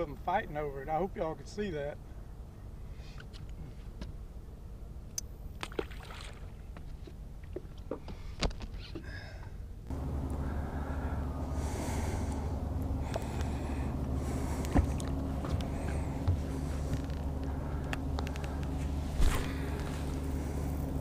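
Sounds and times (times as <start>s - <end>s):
electric motor hum with whine: 9.9s - 21.0s.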